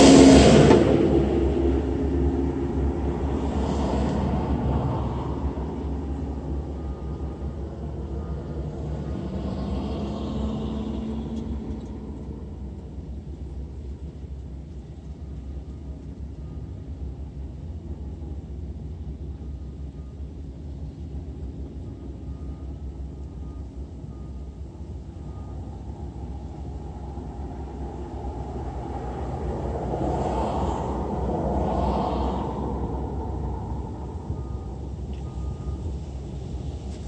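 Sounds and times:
low cabin rumble: 0:00.0 - 0:37.0
passing road traffic: 0:00.0 - 0:37.0.

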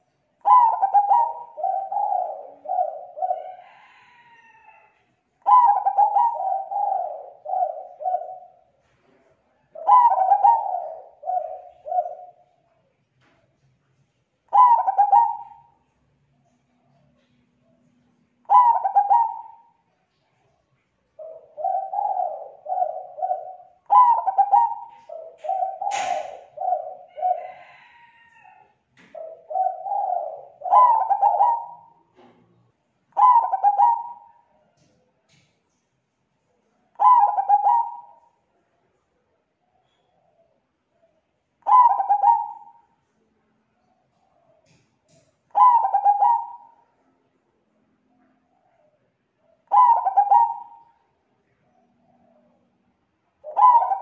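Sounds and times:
dove cooing: 0:00.0 - 0:12.6, 0:14.5 - 0:20.4, 0:21.1 - 0:32.4, 0:33.1 - 0:35.5, 0:36.7 - 0:43.2, 0:43.8 - 0:47.1, 0:48.1 - 0:54.0
sharp click: 0:25.9 - 0:26.4.

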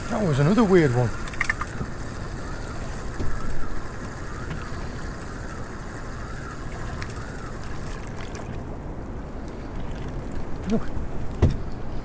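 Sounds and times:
water noise around boat: 0:00.0 - 0:12.0
wind: 0:00.0 - 0:12.0
boat bump: 0:10.6 - 0:11.8.

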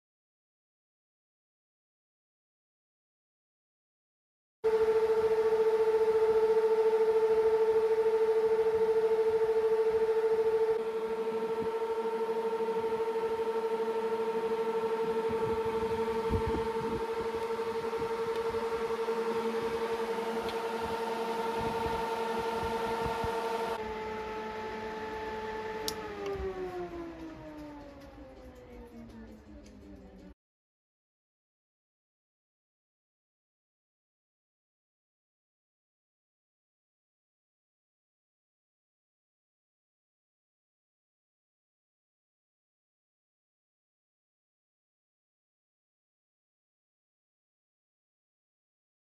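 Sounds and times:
cooling fans whining: 0:04.7 - 0:30.4
switch click: 0:25.8 - 0:26.4.

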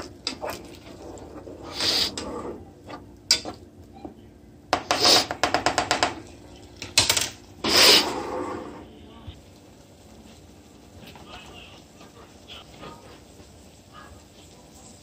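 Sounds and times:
wooden spoon knocking saucepan: 0:04.7 - 0:06.2.

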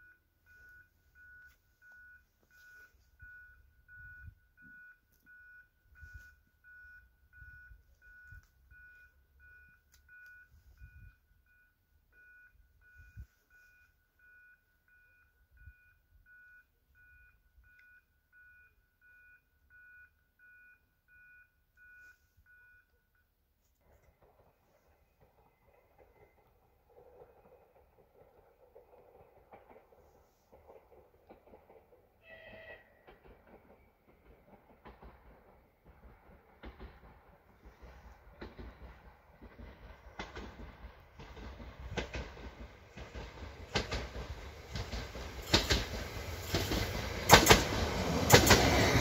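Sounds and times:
level crossing signal beeping: 0:00.0 - 0:23.4.

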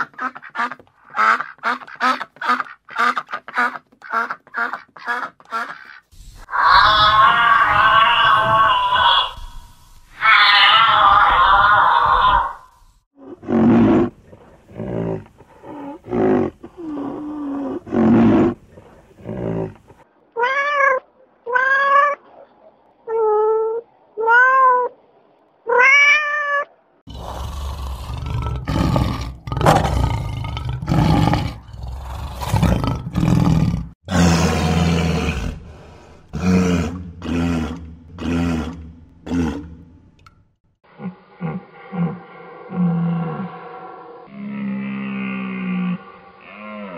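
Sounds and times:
animal grunting: 0:13.2 - 0:20.0, 0:27.1 - 0:40.1, 0:40.9 - 0:46.9
lion roaring grunts: 0:27.1 - 0:39.9.

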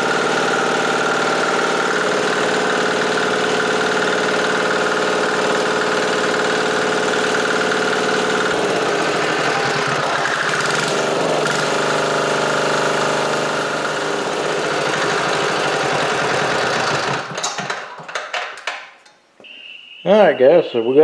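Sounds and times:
diesel engine running: 0:00.0 - 0:17.9
engine knocks coasting to stop: 0:02.4 - 0:19.2.

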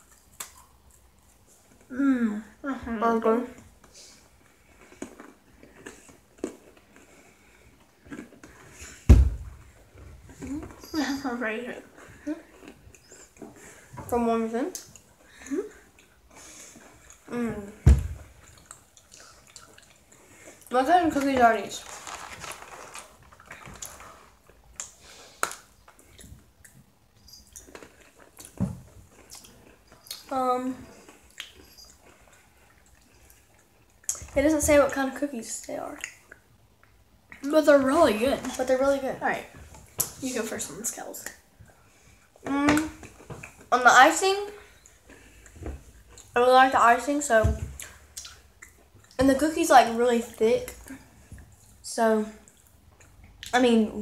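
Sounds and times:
chewing and mouth clicks: 0:00.0 - 0:01.9, 0:04.3 - 0:09.0, 0:11.8 - 0:13.9, 0:14.7 - 0:17.3, 0:18.3 - 0:20.7, 0:23.3 - 0:34.4, 0:35.6 - 0:37.5, 0:44.6 - 0:46.4, 0:47.8 - 0:49.2, 0:52.4 - 0:53.6.

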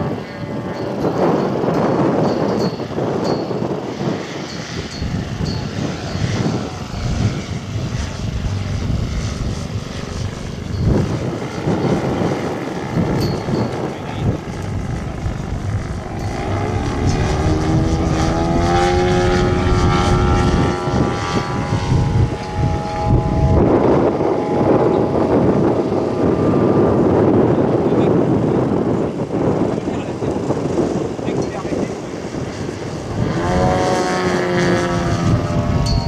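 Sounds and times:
model plane engine and propeller: 0:00.0 - 0:36.0
wind noise on microphone: 0:00.0 - 0:36.0.

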